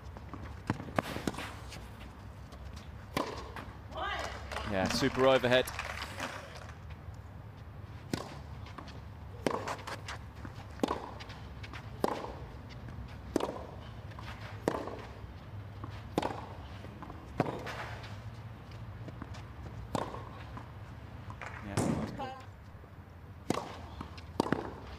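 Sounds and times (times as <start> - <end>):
tennis ball hit by rackets: 3.1 - 5.4, 8.1 - 10.2, 10.8 - 15.2, 16.1 - 18.0, 19.2 - 20.7, 21.3 - 22.3, 23.4 - 24.9.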